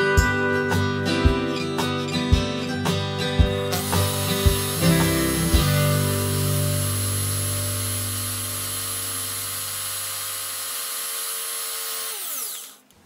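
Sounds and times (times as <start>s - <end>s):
electric rotary tool whining: 3.7s - 13.0s.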